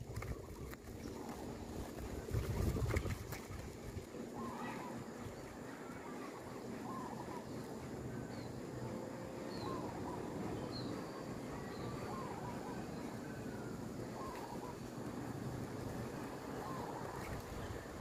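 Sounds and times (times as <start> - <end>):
low outdoor hum: 0.0 - 18.0
faint bird chirps: 4.2 - 15.2.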